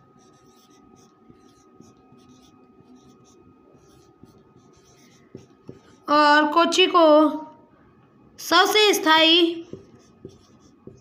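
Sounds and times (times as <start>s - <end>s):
marker scratching on whiteboard: 0.0s - 6.2s, 9.6s - 11.0s.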